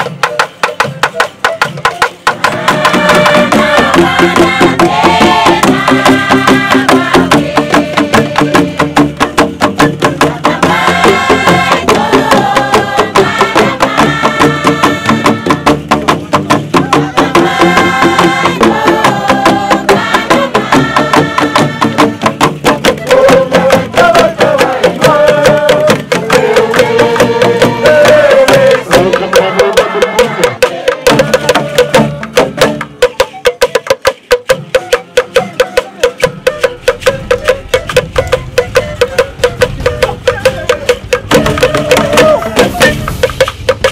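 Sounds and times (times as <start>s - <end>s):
group singing: 1.9s - 33.8s, 34.4s - 43.9s
bamboo tubes struck: 21.2s - 43.9s.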